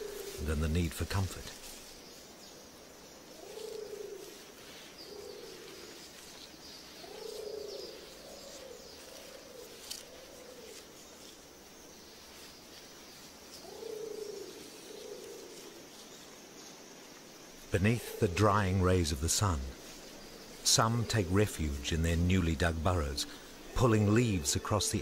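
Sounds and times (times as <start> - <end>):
pigeon cooing: 0.0 - 0.4, 7.0 - 10.8
small birds chirping: 0.0 - 25.0.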